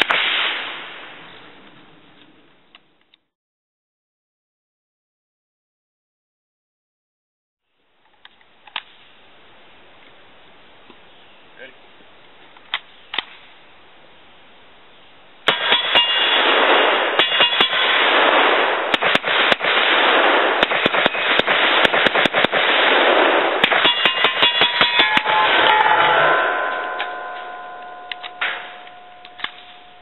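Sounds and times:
semi-automatic gunshots: 0:15.5 - 0:29.8
metallic ringing: 0:15.6 - 0:16.4, 0:17.2 - 0:17.9, 0:23.8 - 0:30.0.

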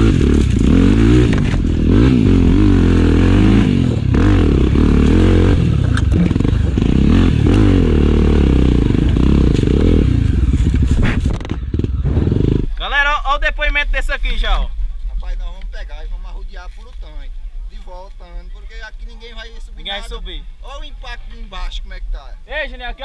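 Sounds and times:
motorcycle engine revving: 0:00.0 - 0:12.8.

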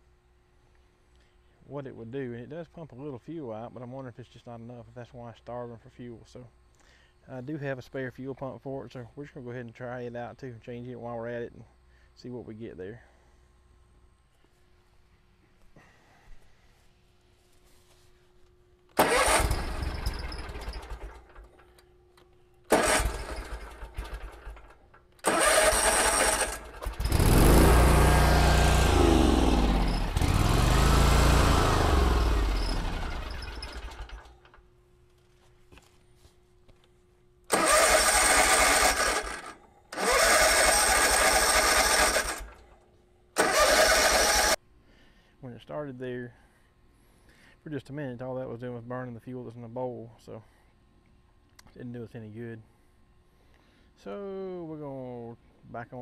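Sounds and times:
mower engine cranking: 0:18.9 - 0:21.8, 0:22.7 - 0:34.6, 0:37.5 - 0:42.6, 0:43.4 - 0:44.6
mower engine running unevenly: 0:19.0 - 0:21.4, 0:22.7 - 0:34.3.

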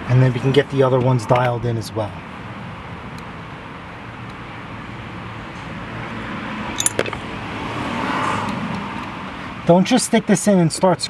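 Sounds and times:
road vehicle passing: 0:04.7 - 0:09.6
metallic clinks of screws: 0:06.8 - 0:07.2.

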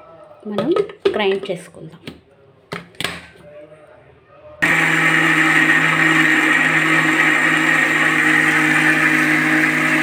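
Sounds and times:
mixer grinder motor running: 0:04.6 - 0:10.0.

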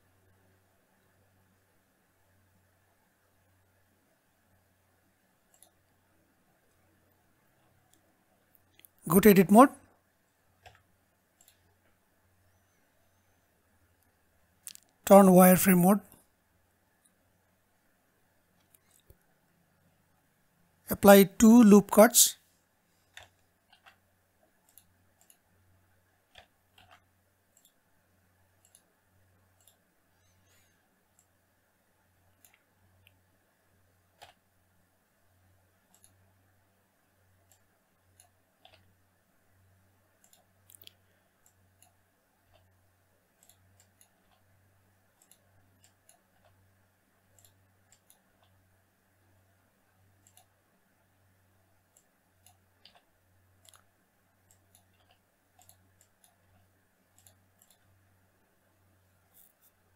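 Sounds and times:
low steady hum: 0:00.0 - 0:59.9
mouse and keyboard clicks: 0:23.1 - 0:24.0, 0:26.3 - 0:27.8, 0:34.2 - 0:34.4, 0:37.5 - 0:38.9, 0:51.9 - 0:57.9.

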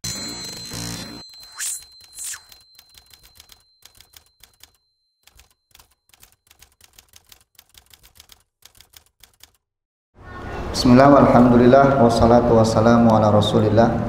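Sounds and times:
typewriter key clacks: 0:01.8 - 0:09.6.

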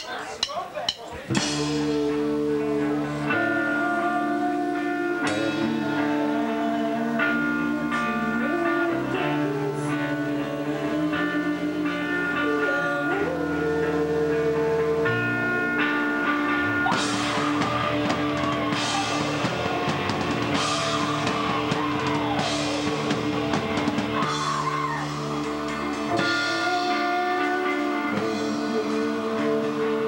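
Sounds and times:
drum kit with cymbal crashes: 0:00.0 - 0:02.3, 0:16.7 - 0:27.1
singer's vocal: 0:01.1 - 0:30.0
distorted electric guitar: 0:01.3 - 0:30.0.

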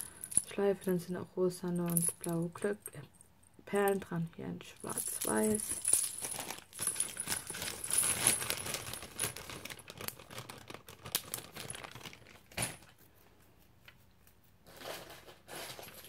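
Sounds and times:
charms clinking and jingling: 0:00.0 - 0:04.0, 0:04.7 - 0:10.4.

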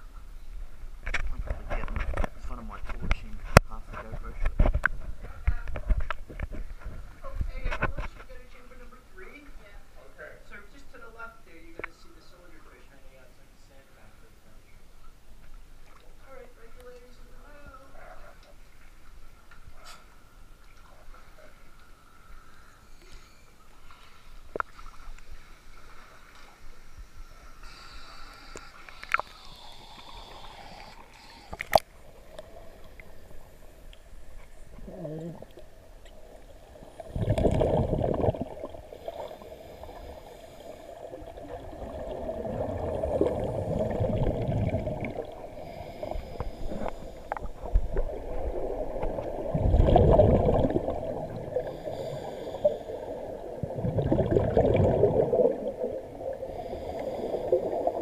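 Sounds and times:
underwater breath bubbling: 0:22.2 - 0:58.0.

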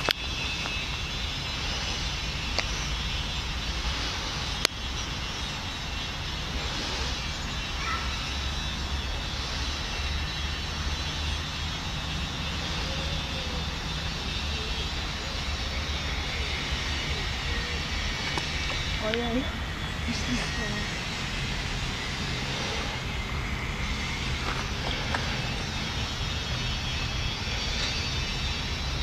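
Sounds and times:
even hiss: 0:00.0 - 0:29.0.

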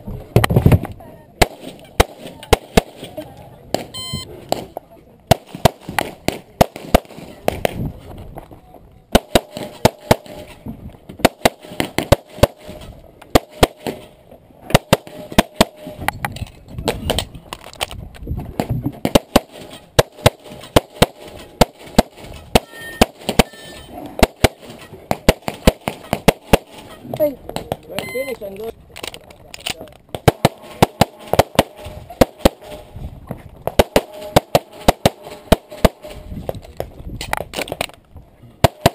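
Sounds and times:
handgun firing rapidly: 0:38.6 - 0:38.9.

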